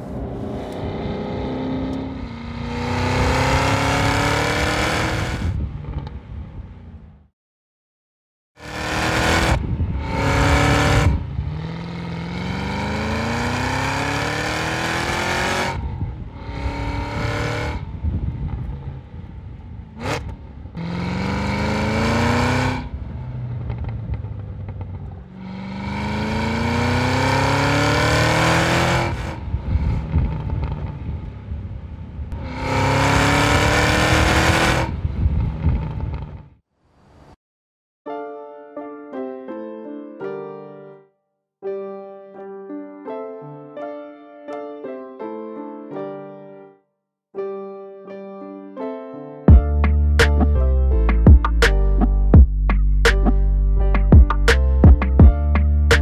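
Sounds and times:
car exhaust accelerating: 0.0 - 6.2, 8.6 - 36.6.

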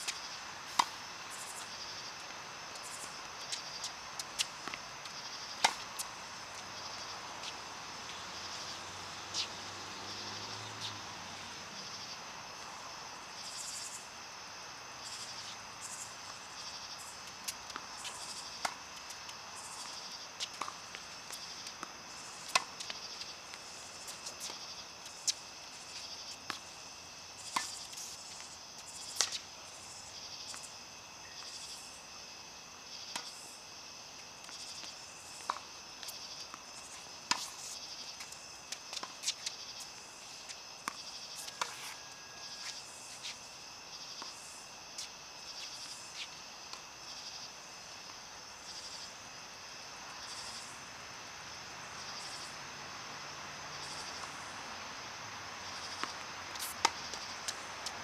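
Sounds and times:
insects chirring: 0.0 - 58.0
tennis balls struck and bouncing: 3.1 - 7.7, 16.2 - 29.5, 34.4 - 39.8, 55.7 - 58.0.

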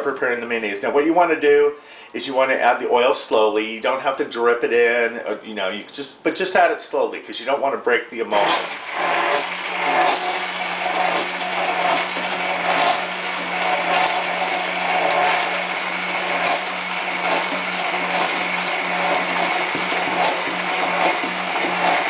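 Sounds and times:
immersion blender whirring: 8.3 - 22.0.

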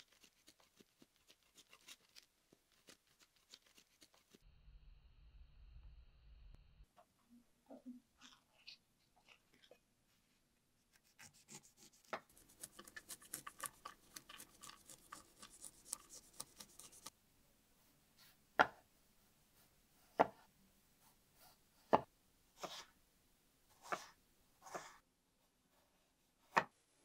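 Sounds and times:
knife chopping on cutting board: 20.1 - 20.4.

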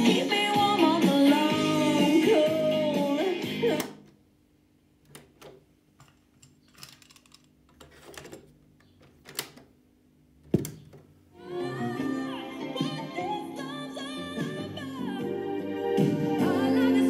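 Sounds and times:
music from a boombox: 0.0 - 4.0, 11.4 - 17.0.

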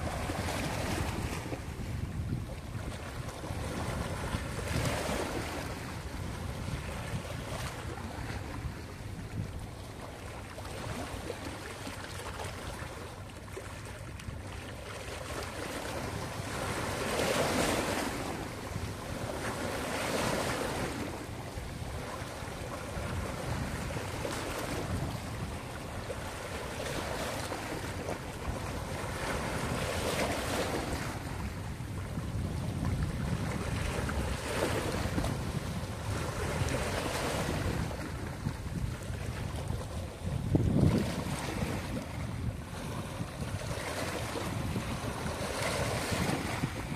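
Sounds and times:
small waves splashing over rocks: 36.1 - 46.9.

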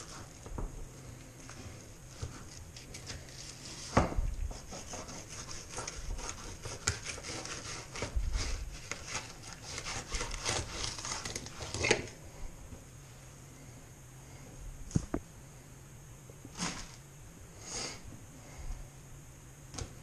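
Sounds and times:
knife scraping and cutting fish: 2.1 - 12.1.

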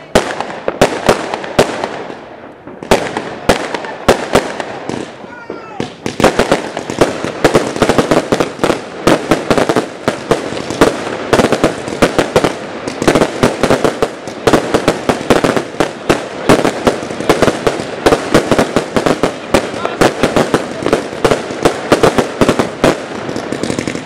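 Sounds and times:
dense firework barrage: 0.0 - 24.0.

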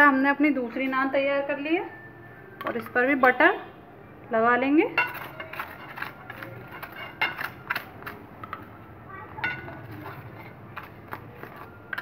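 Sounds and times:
spoon scraping ceramic plate: 5.0 - 8.7, 9.4 - 12.0.

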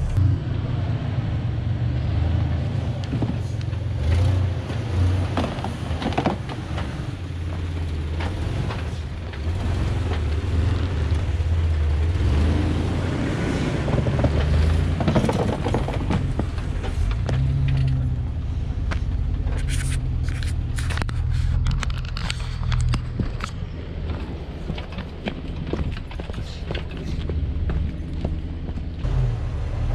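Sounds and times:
low engine rumble: 0.0 - 29.9
tyres crunching over rocks: 13.7 - 18.2, 18.8 - 29.0
sharp clicks and pops: 18.9 - 27.0.

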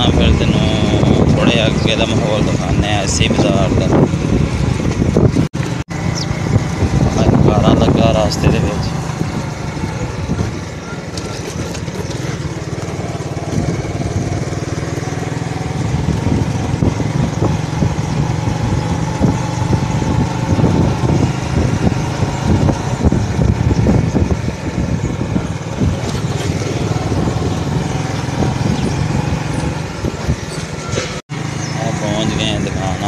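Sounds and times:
motorcycle engine running: 0.0 - 33.0.

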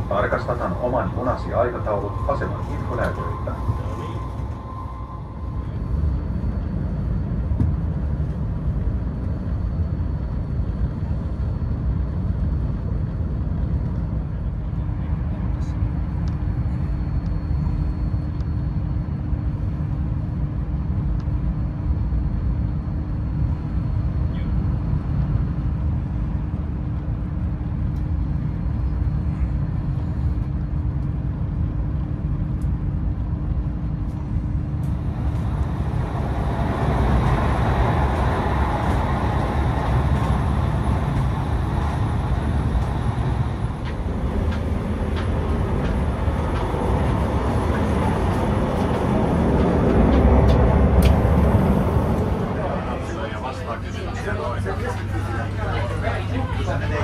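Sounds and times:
faint steady hum: 0.0 - 57.0
train wheels rumbling on track: 0.0 - 57.0.

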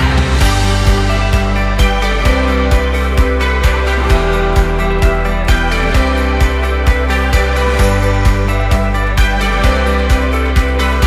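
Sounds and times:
low drum beat: 0.0 - 5.2
sustained chords: 0.0 - 11.0.

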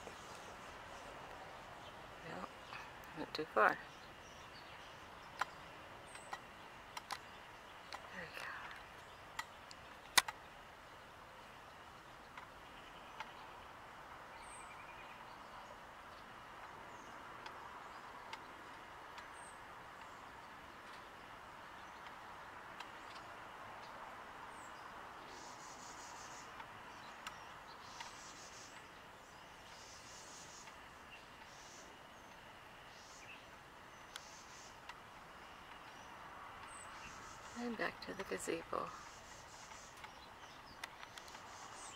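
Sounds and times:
faint steady hiss: 0.0 - 41.9
faint clicks: 5.2 - 10.5, 12.2 - 13.5, 21.8 - 24.6, 25.3 - 29.0, 34.0 - 37.6, 39.0 - 41.9
sharp ticks: 5.3 - 10.4
bird chirps: 24.5 - 41.9.

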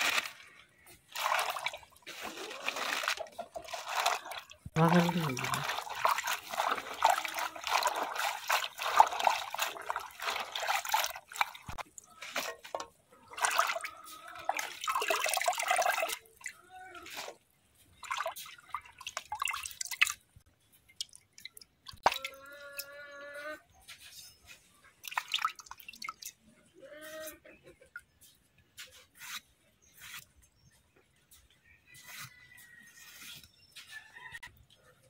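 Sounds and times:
water trickling and dripping: 17.9 - 23.0, 25.0 - 26.5.

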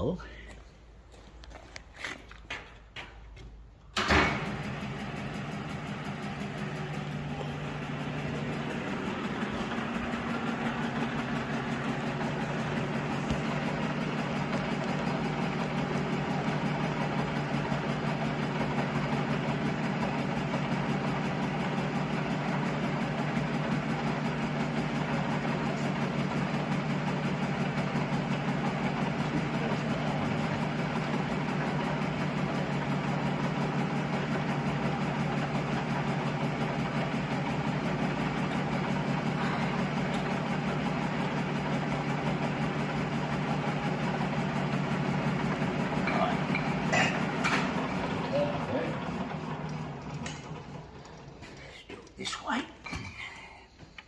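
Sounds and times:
metal lathe humming: 5.5 - 20.0.

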